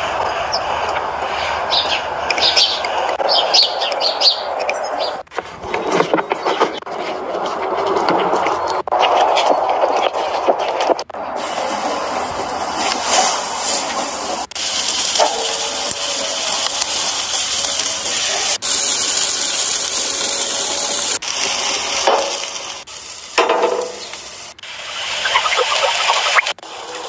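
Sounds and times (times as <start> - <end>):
meat sizzling on a grill: 11.3 - 27.0.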